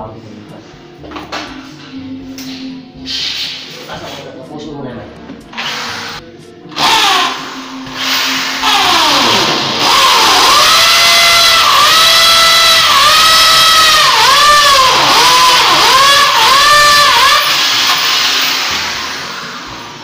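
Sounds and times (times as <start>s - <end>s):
electric drill boring into wall: 5.5s - 20.0s.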